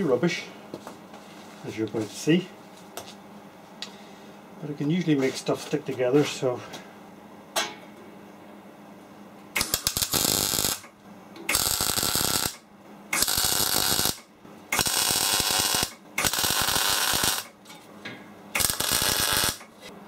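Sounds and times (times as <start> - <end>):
welding arc crackling: 9.6 - 10.9, 11.5 - 17.6, 18.6 - 19.8.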